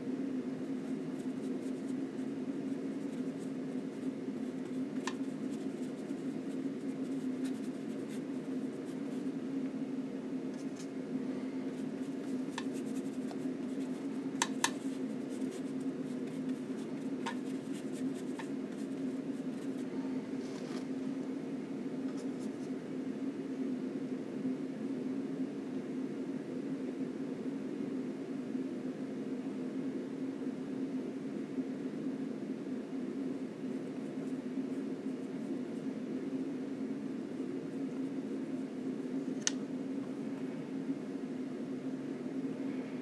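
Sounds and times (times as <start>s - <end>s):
steady low hum: 0.0s - 43.0s
paintbrush scratchy strokes: 0.6s - 9.4s, 10.6s - 20.9s
paintbrush light taps: 5.0s - 5.3s, 14.4s - 14.9s, 17.2s - 18.5s.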